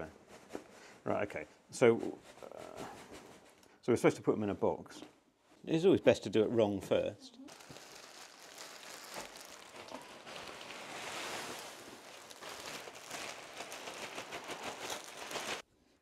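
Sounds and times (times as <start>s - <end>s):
plastic sack crinkling: 7.5s - 15.6s
polystyrene beads pouring: 7.5s - 15.6s.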